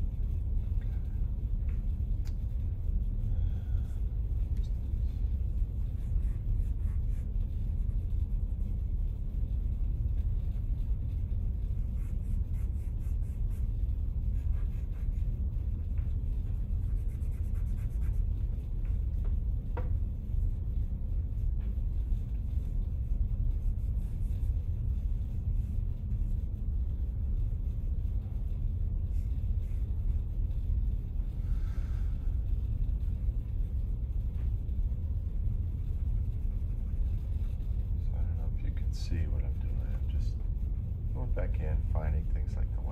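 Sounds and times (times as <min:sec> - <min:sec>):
steady low rumble: 0:00.0 - 0:42.9
charcoal scratching on paper: 0:05.8 - 0:09.1, 0:10.1 - 0:18.8.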